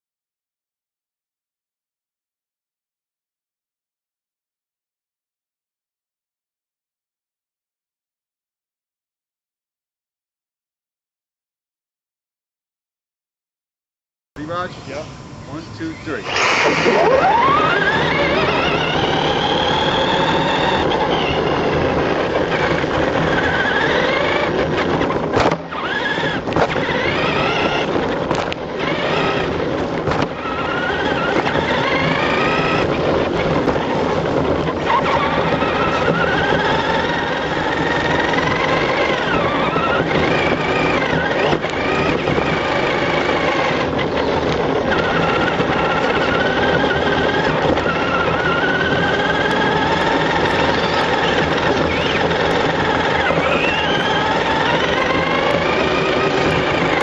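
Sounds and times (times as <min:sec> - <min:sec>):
remote-control truck motor whining: 0:15.6 - 0:57.0
tyre noise on dirt: 0:16.2 - 0:57.0.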